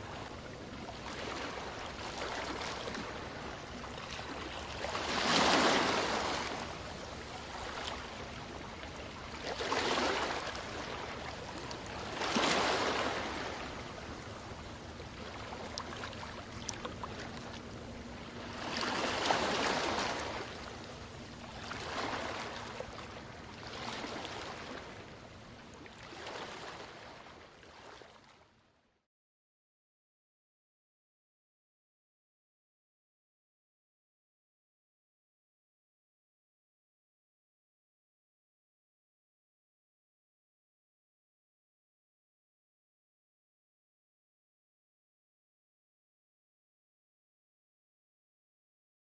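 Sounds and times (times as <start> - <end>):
waves washing onto beach: 0.9 - 17.6.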